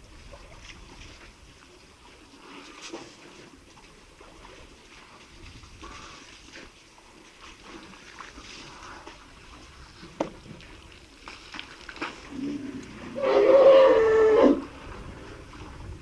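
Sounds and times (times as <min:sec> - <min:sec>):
elephant trumpeting: 0:13.1 - 0:14.7.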